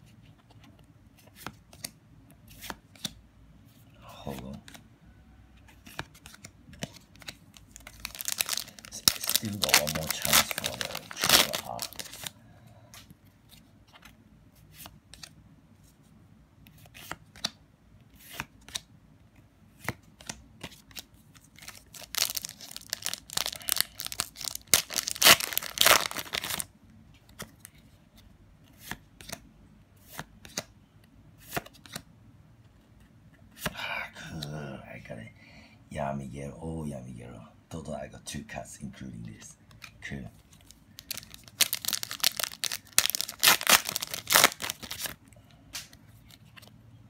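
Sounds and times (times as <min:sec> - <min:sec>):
cards clicking and sliding: 0:00.6 - 0:03.2, 0:31.4 - 0:32.0
foil card pack crinkling and tearing: 0:07.8 - 0:12.3, 0:21.6 - 0:26.7, 0:41.0 - 0:45.2.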